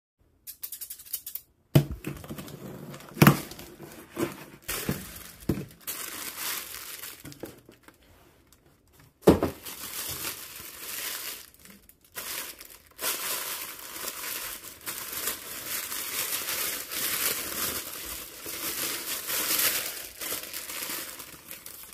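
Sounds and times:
scissors snipping tape: 0.4 - 1.5
paper crinkling and rustling: 1.9 - 21.9.

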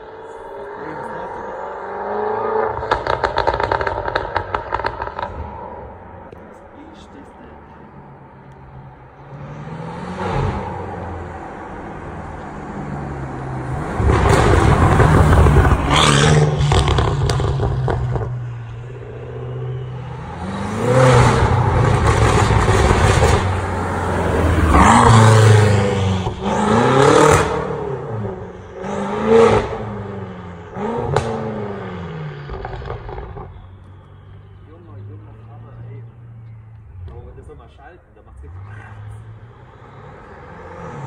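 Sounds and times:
car engine accelerating hard: 0.0 - 5.6, 9.2 - 33.6
exhaust cracks: 2.7 - 5.6, 13.7 - 18.4, 21.2 - 27.8.

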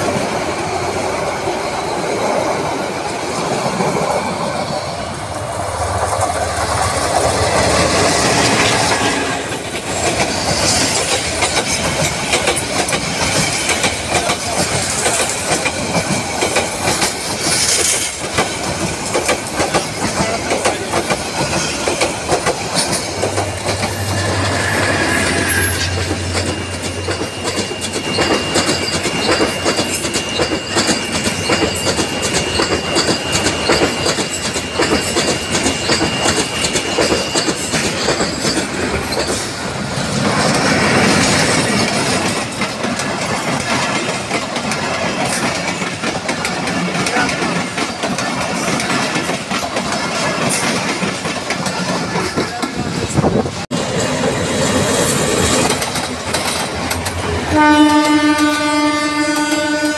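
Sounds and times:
train wheels clattering: 0.0 - 59.9
high-pitched whine: 23.1 - 29.1.

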